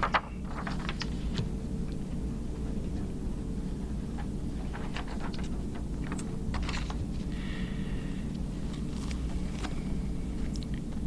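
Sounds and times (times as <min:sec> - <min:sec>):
papers rustling and clicking: 0:00.0 - 0:02.0, 0:04.1 - 0:07.3, 0:08.7 - 0:09.9
steady low hum: 0:00.0 - 0:11.0.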